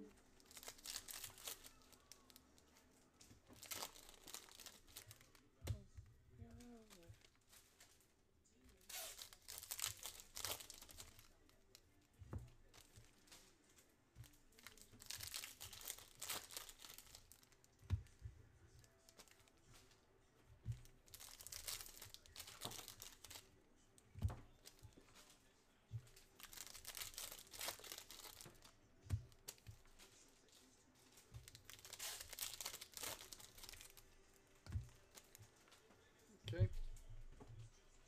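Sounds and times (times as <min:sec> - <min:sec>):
foil wrapper tearing and crinkling: 0:00.4 - 0:02.6, 0:03.5 - 0:05.5, 0:08.7 - 0:11.9, 0:14.3 - 0:17.7, 0:20.8 - 0:23.6, 0:26.2 - 0:30.0, 0:31.3 - 0:34.2.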